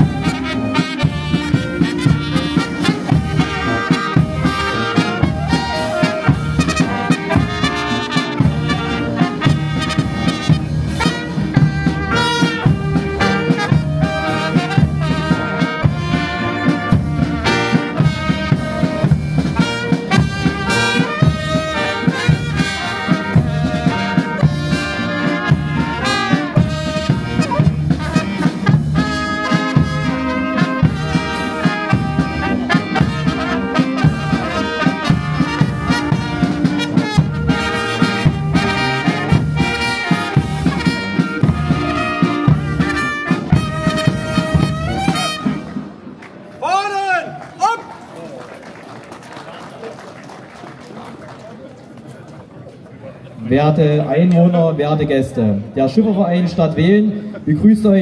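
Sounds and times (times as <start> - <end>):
steady drum beat: 0.0 - 46.0
brass band playing a march: 0.0 - 46.2.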